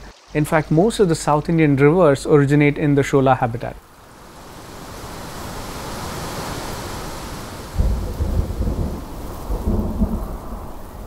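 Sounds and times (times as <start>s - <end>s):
steady hiss: 0.0s - 11.0s
thunder rumbling: 7.8s - 11.0s.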